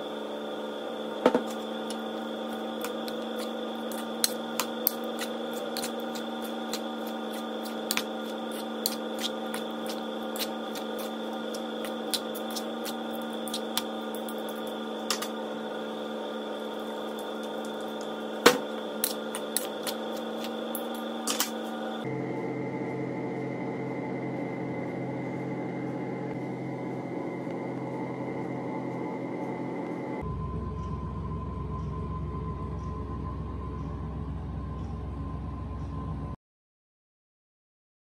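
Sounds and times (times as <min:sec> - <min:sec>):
electric hum: 0:00.0 - 0:36.4
fork scraping against bowl: 0:02.5 - 0:13.9.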